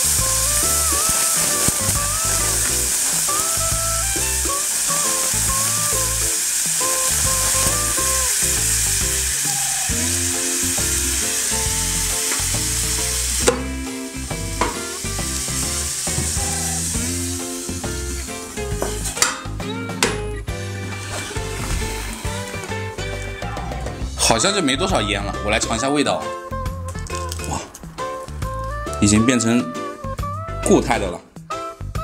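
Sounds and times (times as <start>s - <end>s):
liquid nitrogen hissing: 0.0s - 23.6s
background music: 0.0s - 32.0s.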